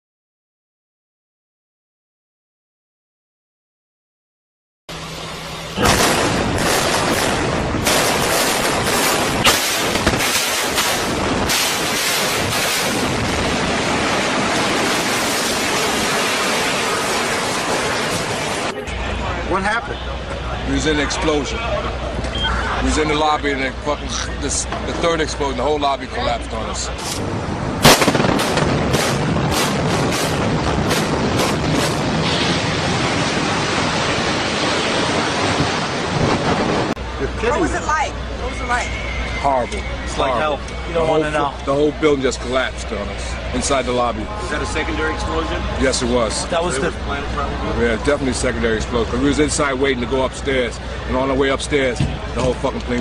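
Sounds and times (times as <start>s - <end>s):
demolition charge blasts: 5.0s - 18.8s, 27.0s - 37.2s
building collapsing rush: 5.1s - 19.8s, 26.6s - 39.0s.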